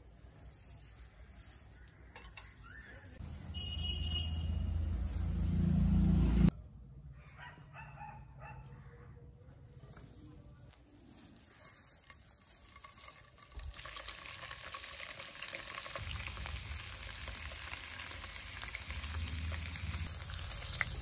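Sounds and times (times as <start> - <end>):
water boiling hard in pot: 12.7 - 21.0.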